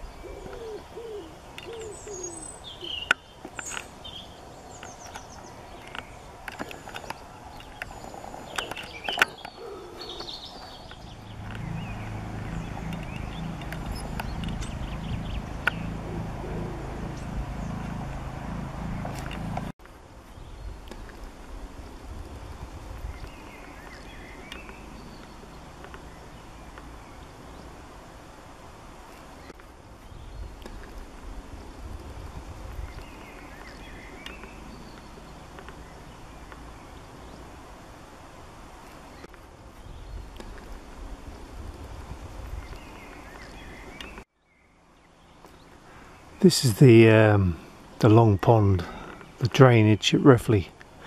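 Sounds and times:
faint bird chirps: 0.0s - 17.9s
small birds chirping faintly: 0.0s - 51.0s
pulsing low hum: 9.7s - 19.7s
steady low rumble: 10.4s - 28.9s.

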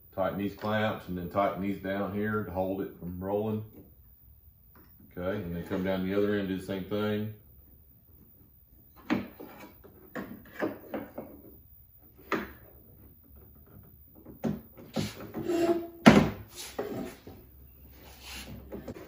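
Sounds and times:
knocks clicks and scrapes of wood: 8.1s - 17.5s, 18.4s - 19.0s.

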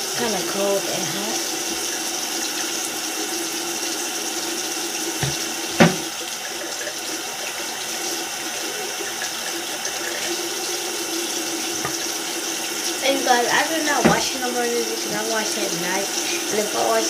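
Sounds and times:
sink tap running: 0.0s - 17.0s
sharp knock: 5.2s - 6.1s.

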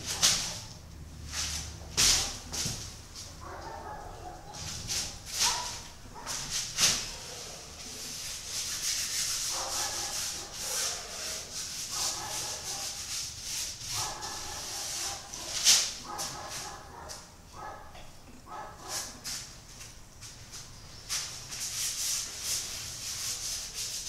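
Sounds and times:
paintbrush scrubbing on canvas: 3.8s - 17.2s, 20.4s - 24.0s.

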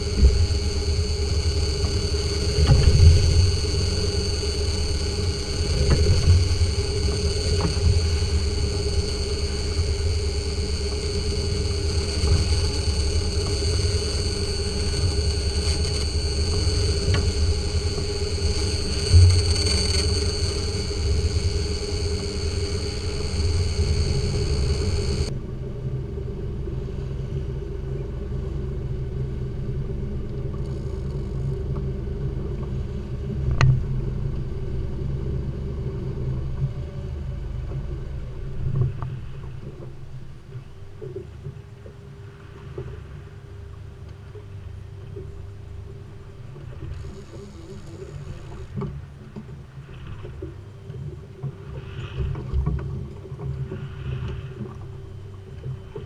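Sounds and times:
diesel boat engine running: 0.0s - 38.8s
high whine: 0.0s - 40.3s
water rushing along hull: 0.0s - 56.0s.

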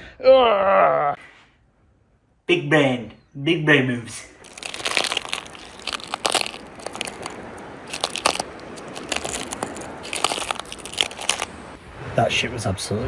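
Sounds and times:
footsteps crunching on twigs: 4.4s - 11.7s.

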